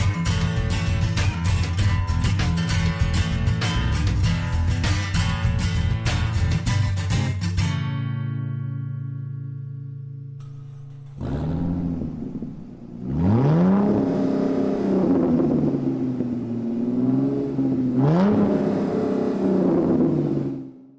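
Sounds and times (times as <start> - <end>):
sports car engine revving: 10.4 - 20.9.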